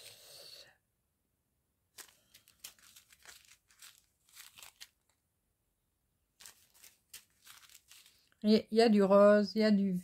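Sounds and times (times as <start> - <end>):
plastic bags crinkling: 1.9 - 5.2, 6.4 - 8.5.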